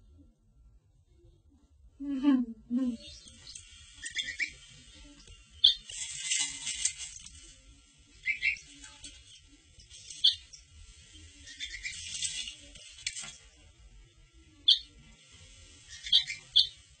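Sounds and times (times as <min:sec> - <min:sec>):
hissy rustle: 0:02.9 - 0:14.3.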